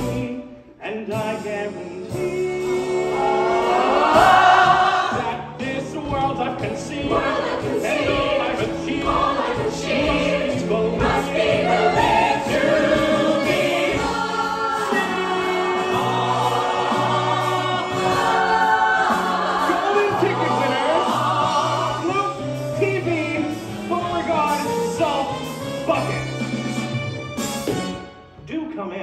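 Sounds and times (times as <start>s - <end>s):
ensemble singing in chorus: 2.1s - 22.6s.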